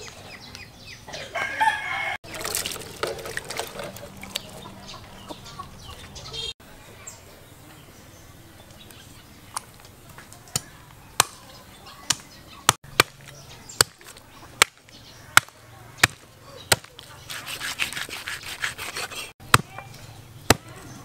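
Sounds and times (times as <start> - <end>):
cleaver chopping on wooden block: 13.0 - 13.2, 15.4 - 17.0
scraping on chopping block: 17.2 - 19.4.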